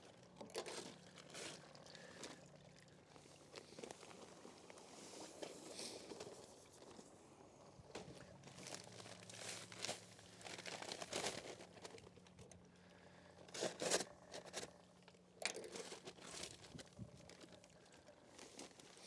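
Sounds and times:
faint low hum: 0.0 - 19.0
paper bag crinkling: 0.4 - 2.4, 7.9 - 12.6, 13.5 - 19.0.

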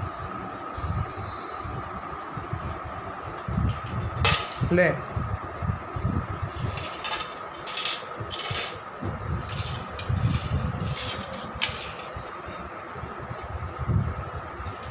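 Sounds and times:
faint hum: 0.0 - 14.9
metal plate scraping on tiles: 6.4 - 12.3.

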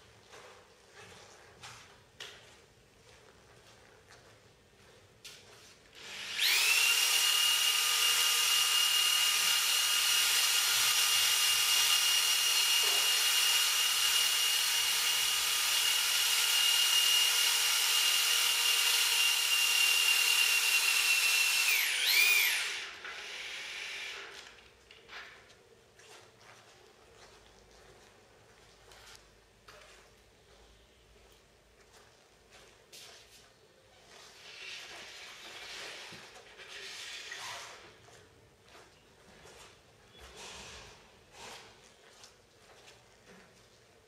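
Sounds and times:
power drill whining: 6.0 - 24.6.

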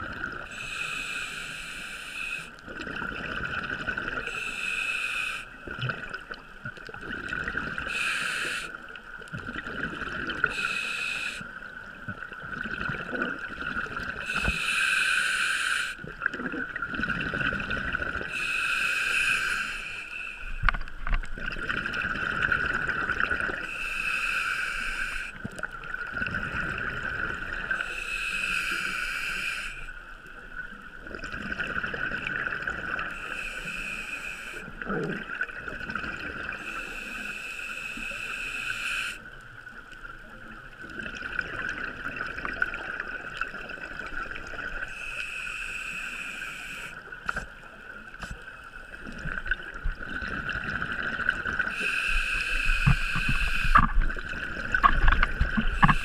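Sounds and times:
regulator inhale hiss: 0.4 - 2.6, 4.2 - 5.6, 7.8 - 9.0, 10.4 - 11.7, 14.2 - 16.1, 18.2 - 20.8, 23.6 - 25.6, 27.7 - 30.1, 33.0 - 34.8, 36.5 - 39.5, 44.8 - 48.4, 51.6 - 54.1, 55.6 - 56.0
exhaled bubbles burbling: 2.6 - 4.2, 5.7 - 7.9, 9.3 - 10.5, 12.0 - 14.3, 16.0 - 18.3, 20.6 - 23.7, 31.0 - 33.1, 34.8 - 36.6, 40.8 - 44.9, 49.0 - 51.8, 52.7 - 56.0.

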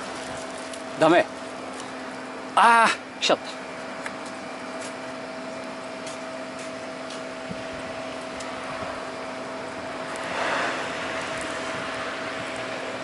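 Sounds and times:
low hum: 0.0 - 13.0
hot water line hissing: 8.5 - 13.0.

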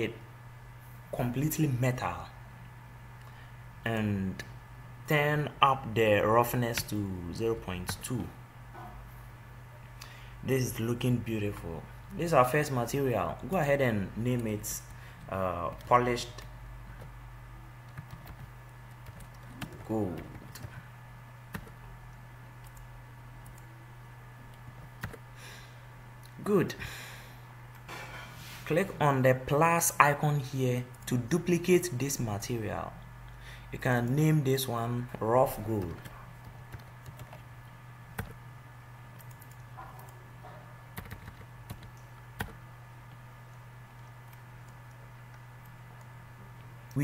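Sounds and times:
low electrical hum: 0.0 - 47.0
computer keys and mouse clicking: 17.8 - 20.8, 21.5 - 21.8, 22.6 - 23.7, 24.8 - 25.2, 36.7 - 37.4, 39.2 - 40.2, 41.0 - 43.2.

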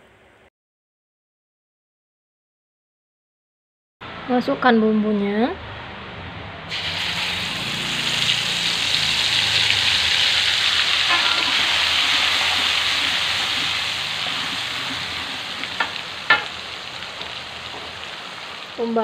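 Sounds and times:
spice paste sizzling in oil: 6.7 - 19.0
spatula knocking on pan: 15.6 - 16.6.

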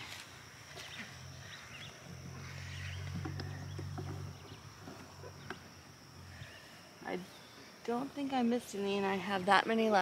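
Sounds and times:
high insect drone: 0.0 - 10.0
low hum: 0.2 - 7.6
faint bird chirps: 0.8 - 7.8.

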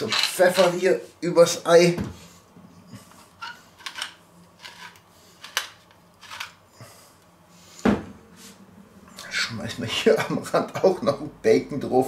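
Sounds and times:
pepper mill grinding: 3.8 - 6.6.

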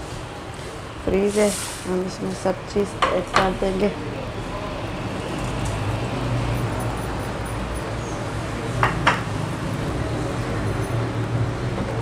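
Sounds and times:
background hum and hiss: 0.0 - 4.7.

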